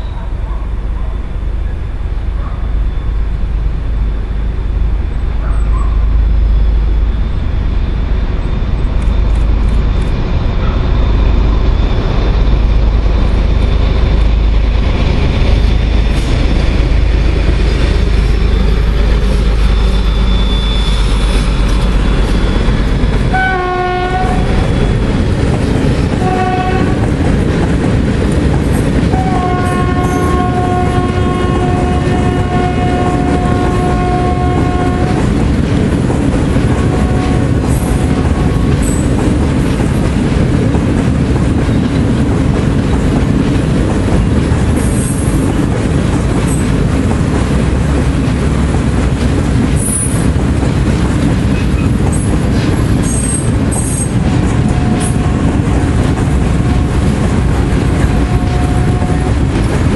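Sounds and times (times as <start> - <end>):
diesel locomotive engine rumble: 0.0 - 59.9
locomotive horn blasts: 23.3 - 24.6, 26.2 - 27.1, 29.2 - 35.3, 36.7 - 38.7, 54.6 - 55.8, 58.1 - 59.5.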